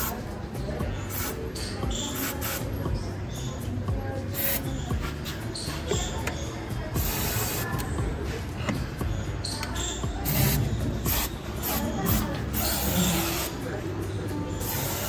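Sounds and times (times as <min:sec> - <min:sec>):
aerosol spray hissing: 0:10.3 - 0:13.6, 0:14.6 - 0:15.0.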